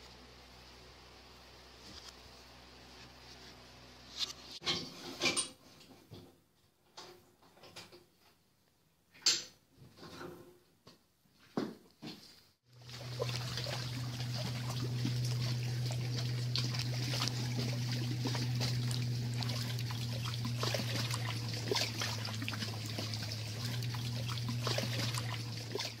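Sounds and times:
steady low hum: 12.7s - 26.0s.

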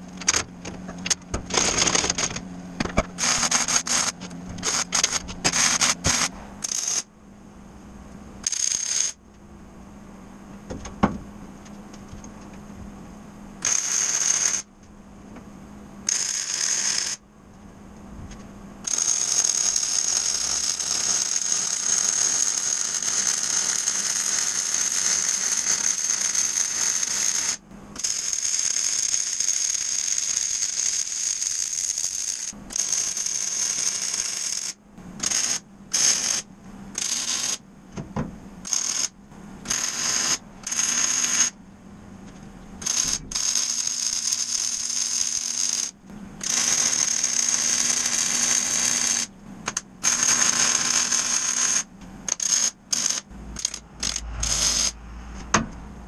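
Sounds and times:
welding arc crackling sizzle: 1.0s - 7.1s.

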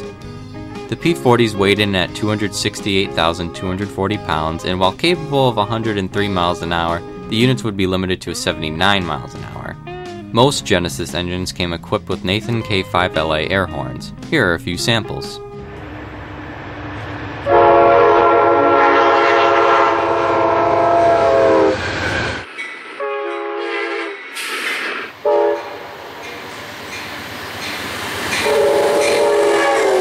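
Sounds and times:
passing train rumble: 0.0s - 30.0s
locomotive air horn chord: 15.6s - 21.8s, 23.0s - 24.2s, 25.2s - 25.9s, 28.4s - 30.0s.

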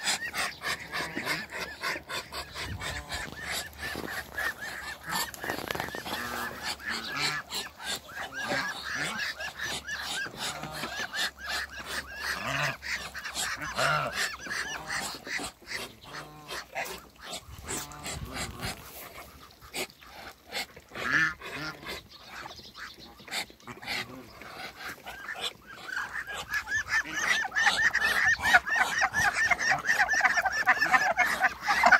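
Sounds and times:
geese honking: 0.0s - 19.0s, 22.8s - 31.9s
ducks calling: 0.0s - 31.9s.

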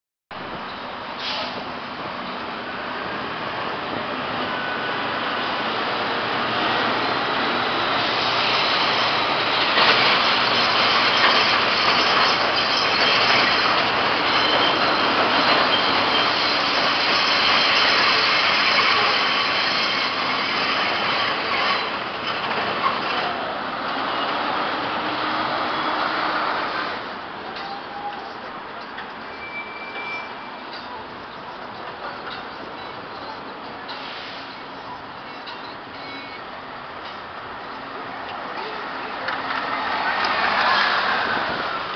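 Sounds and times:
train clattering rumble overhead: 7.9s - 23.5s
faint wheel squeal: 10.7s - 22.0s, 27.6s - 28.4s, 29.0s - 31.0s, 32.0s - 36.5s.

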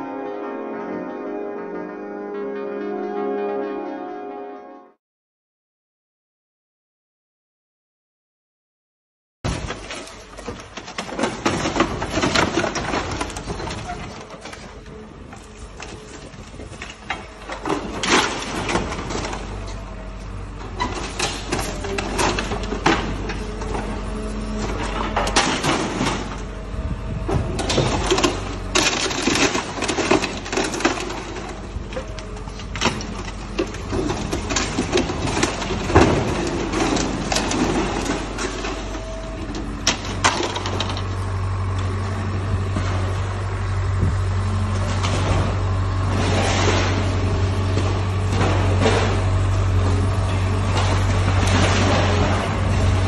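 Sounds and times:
diesel engine hum: 9.5s - 53.0s
metal and glass crunching: 20.8s - 26.4s, 27.5s - 41.3s, 50.2s - 53.0s.

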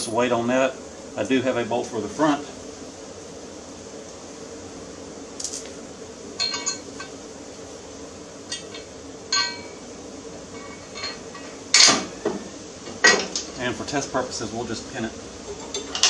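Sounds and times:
steady background hum: 0.0s - 16.0s
metal parts clinking: 6.4s - 7.1s.

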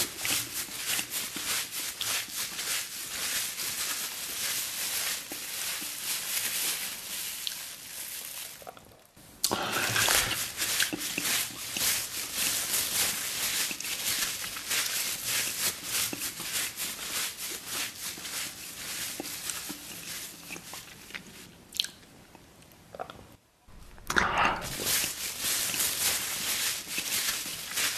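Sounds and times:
plastic bag crinkling: 0.0s - 21.5s, 23.7s - 27.9s.

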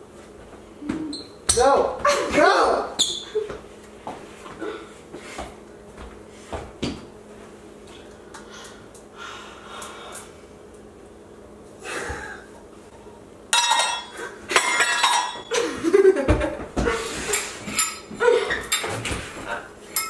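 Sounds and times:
pots and pans clattering: 13.6s - 15.6s, 16.3s - 20.0s.

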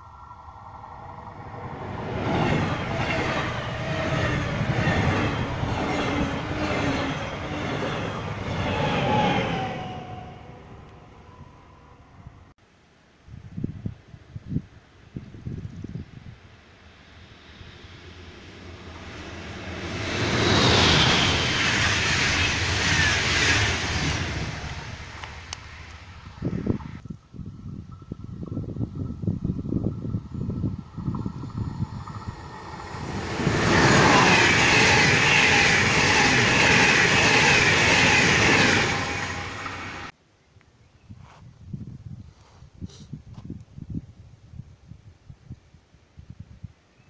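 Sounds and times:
train passing at speed: 0.0s - 12.5s, 16.2s - 27.0s, 27.9s - 40.2s.

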